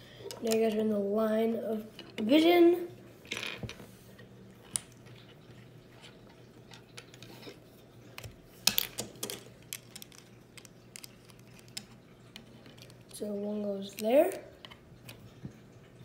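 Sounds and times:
plastic bricks clicking: 0:08.2 - 0:13.2.

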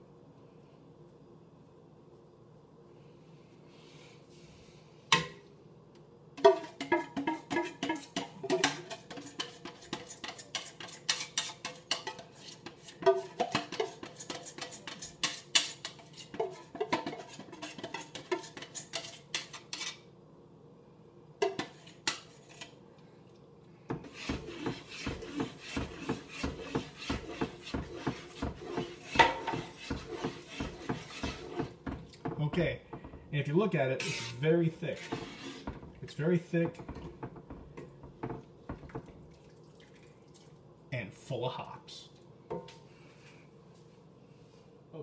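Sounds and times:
utensil scraping inside tin can: 0:06.5 - 0:20.0, 0:24.0 - 0:31.9, 0:34.0 - 0:36.7.

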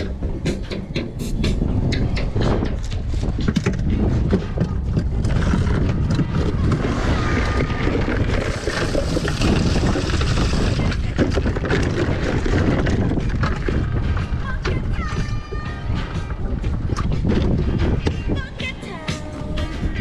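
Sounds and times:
wind buffeting microphone: 0:00.0 - 0:20.0
cans and bottles rattling: 0:02.6 - 0:15.4.

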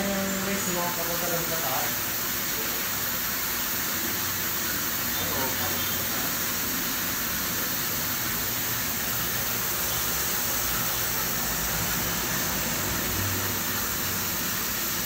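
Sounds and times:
water hissing through purifier: 0:00.0 - 0:15.0.

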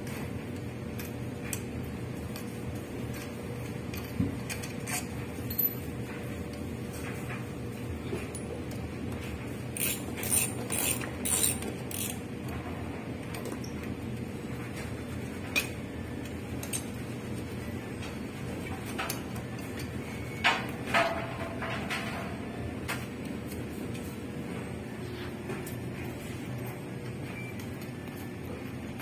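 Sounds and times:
steady low hum: 0:00.0 - 0:29.0
tools clicking on metal parts: 0:00.9 - 0:07.4, 0:08.1 - 0:12.6, 0:13.2 - 0:17.3, 0:18.0 - 0:22.3.

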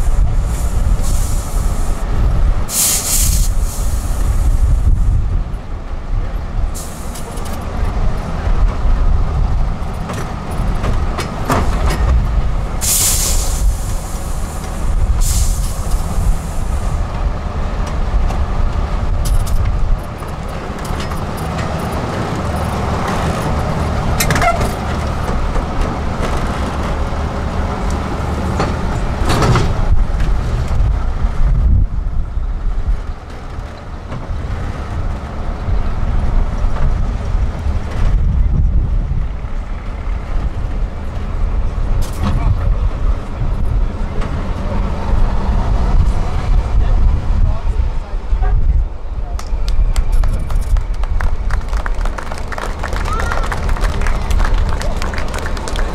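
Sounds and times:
heavy diesel truck engine: 0:00.0 - 0:55.9
hiss bursts: 0:00.4 - 0:02.1, 0:02.7 - 0:05.0, 0:06.8 - 0:07.3, 0:12.8 - 0:16.9.

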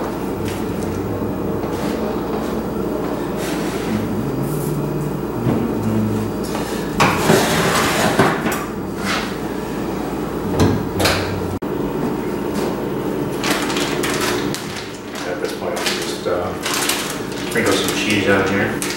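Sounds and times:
steady low hum: 0:00.0 - 0:18.9
oven rack scraping and rattling: 0:06.4 - 0:09.4
oven door shutting: 0:10.4 - 0:11.5.

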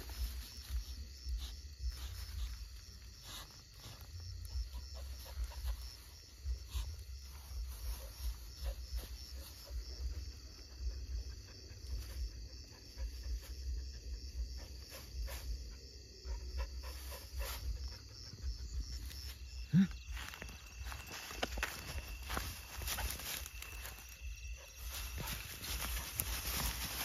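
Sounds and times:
footsteps through tall grass: 0:00.0 - 0:10.2, 0:18.6 - 0:27.0
insects chirping: 0:00.0 - 0:27.0.

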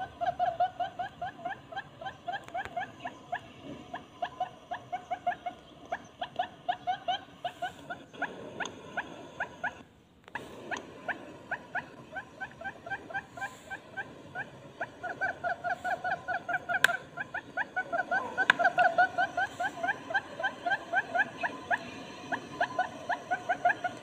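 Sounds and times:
rising chirped bird calls: 0:00.0 - 0:24.0.

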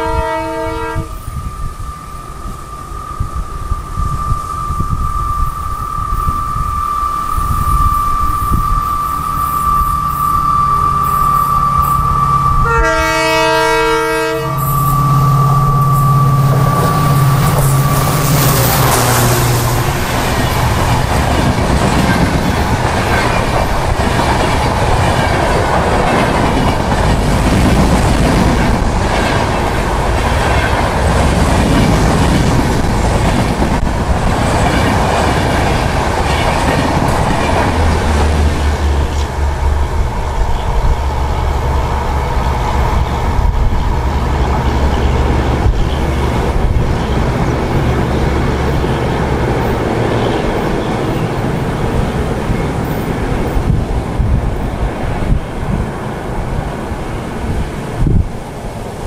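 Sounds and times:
locomotive horn blast: 0:00.0 - 0:01.3, 0:09.8 - 0:20.1
diesel locomotive passing: 0:00.0 - 0:59.0
train wheels on rails: 0:00.0 - 0:59.0.

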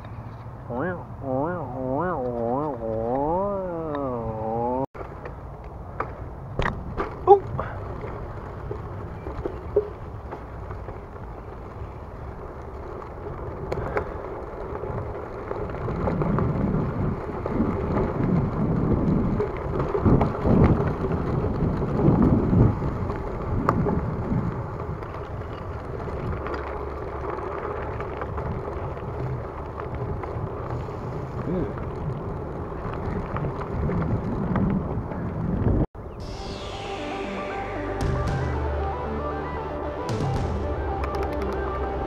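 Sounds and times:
bicycle tyre noise on dirt: 0:01.9 - 0:36.2
bike clicks and rattles: 0:05.0 - 0:35.8
wind buffeting microphone: 0:05.4 - 0:26.4, 0:28.2 - 0:35.9.

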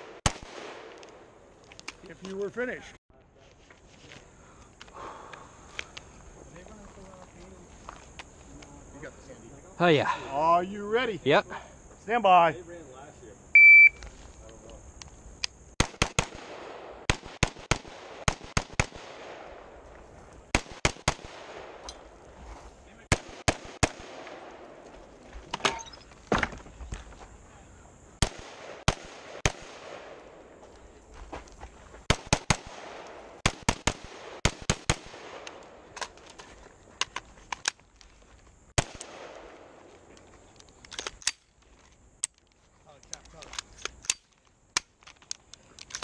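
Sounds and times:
rapid rifle gunfire: 0:15.8 - 0:19.4, 0:23.1 - 0:24.3, 0:32.1 - 0:35.4.

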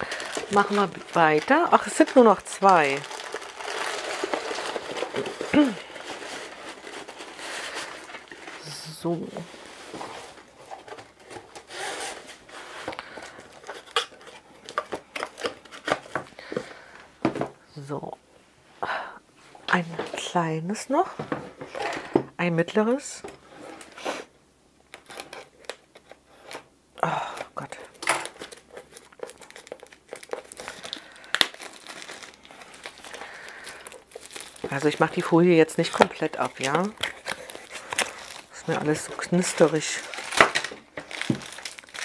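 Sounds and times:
plastic film crinkling and tearing: 0:00.0 - 0:16.4, 0:24.9 - 0:26.7, 0:27.3 - 0:42.0.

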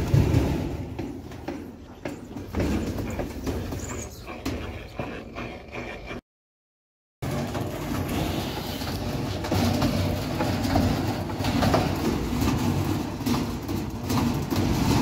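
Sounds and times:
washing machine spinning: 0:00.0 - 0:04.0, 0:07.2 - 0:15.0.

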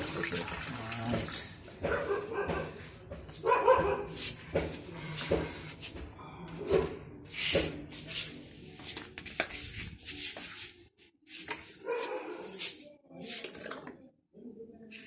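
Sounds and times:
dog barking: 0:01.8 - 0:02.8, 0:03.4 - 0:04.3, 0:11.8 - 0:12.6.

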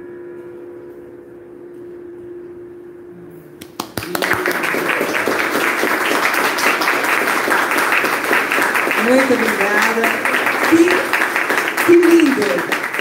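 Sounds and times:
audience applause: 0:03.6 - 0:13.0.

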